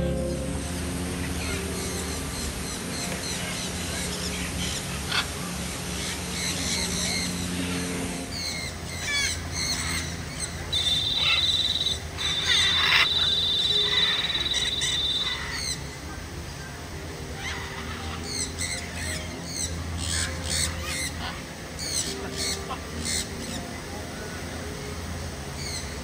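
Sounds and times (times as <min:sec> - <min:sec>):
long high bird trill: 0:00.0 - 0:03.1, 0:08.3 - 0:15.9
birds chirping and squawking: 0:01.2 - 0:15.9, 0:17.4 - 0:23.7, 0:25.6 - 0:25.9.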